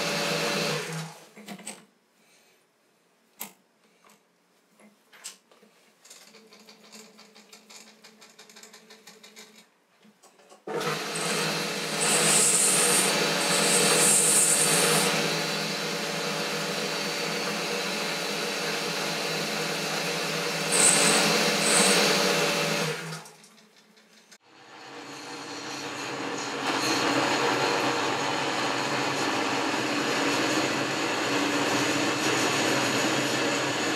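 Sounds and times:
metal lathe whine: 10.8s - 22.9s, 24.5s - 33.9s
cutting tool hissing on metal: 10.9s - 18.9s, 19.5s - 22.8s.

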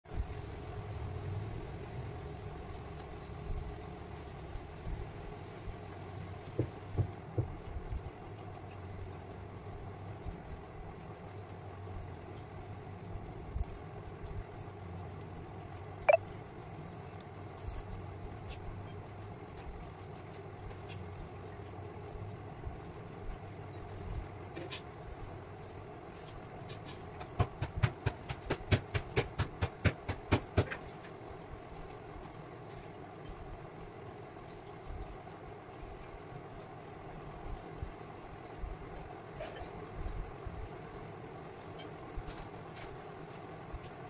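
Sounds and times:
steady low hum: 0.1s - 29.4s, 30.0s - 44.0s.

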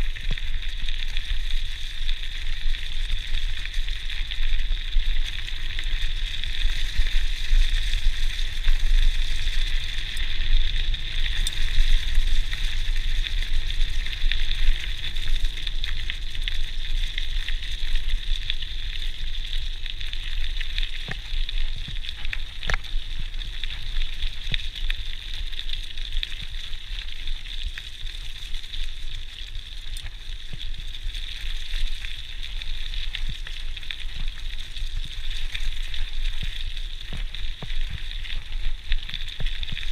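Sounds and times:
bike tyres rolling over leaves: 0.0s - 39.9s
low wind rumble on microphone: 0.0s - 39.9s
small clicks and crackles: 0.0s - 39.9s.

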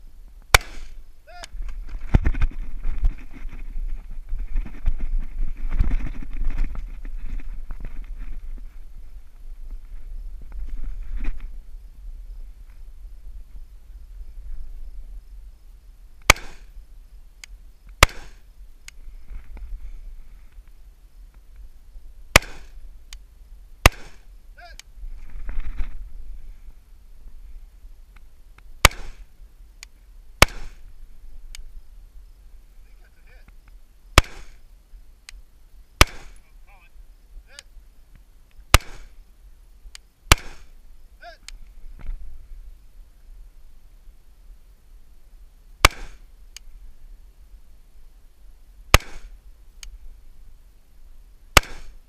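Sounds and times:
rifle shots: 0.5s - 1.0s, 16.2s - 16.7s, 18.0s - 18.4s, 22.3s - 22.8s, 23.8s - 24.3s, 28.8s - 29.3s, 30.4s - 30.8s, 34.2s - 34.6s, 36.0s - 36.4s, 38.7s - 39.2s, 40.3s - 40.7s, 45.8s - 46.2s, 48.9s - 49.4s, 51.6s - 52.0s
faint ticks: 17.4s - 18.0s, 18.8s - 19.7s, 23.1s - 23.3s, 28.1s - 28.7s, 29.8s - 30.1s, 31.5s - 31.7s, 33.4s - 33.8s, 35.2s - 35.4s, 39.8s - 40.1s, 41.4s - 42.2s, 46.5s - 46.8s, 49.8s - 50.0s.

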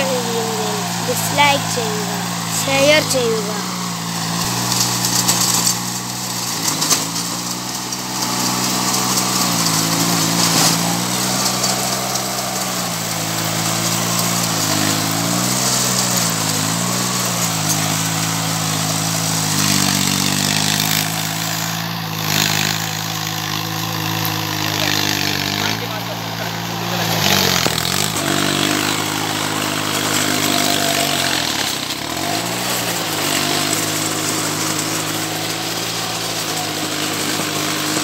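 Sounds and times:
tractor engine running under load: 0.0s - 38.0s.

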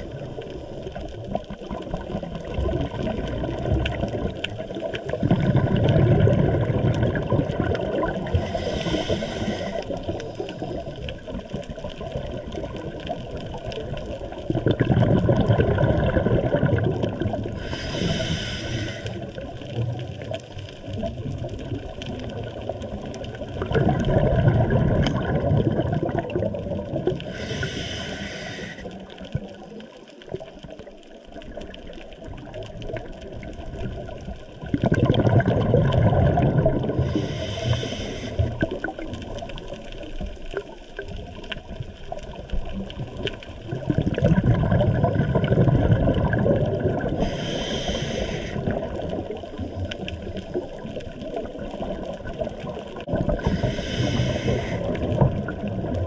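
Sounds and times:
bubbling exhaust: 2.0s - 11.5s, 14.5s - 20.3s, 20.9s - 28.9s, 34.6s - 39.1s, 43.0s - 56.0s
regulator hissing inhalations: 8.4s - 10.4s, 17.6s - 19.3s, 27.3s - 29.1s, 37.0s - 38.6s, 47.2s - 48.8s, 53.4s - 55.1s.

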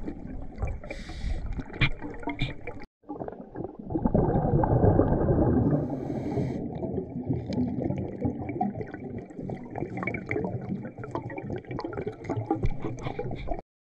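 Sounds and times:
muffled underwater river rumble: 3.4s - 11.2s.

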